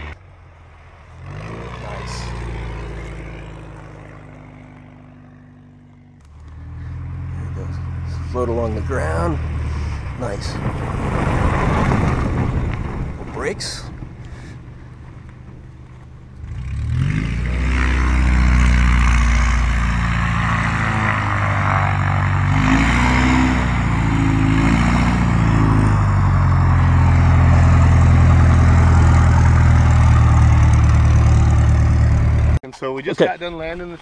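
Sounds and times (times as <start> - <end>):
propeller plane engine taxiing: 0.0 - 32.6.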